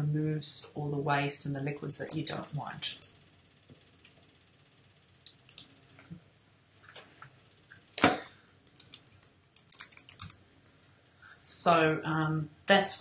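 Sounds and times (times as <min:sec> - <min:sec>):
faint clicks and taps: 0:02.9 - 0:04.3, 0:05.2 - 0:06.2.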